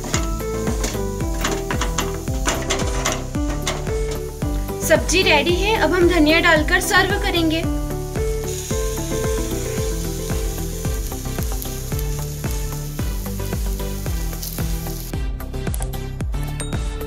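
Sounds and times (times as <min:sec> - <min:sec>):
food sizzling in a frying pan: 0:00.0 - 0:15.2
background music with a beat: 0:00.0 - 0:17.0.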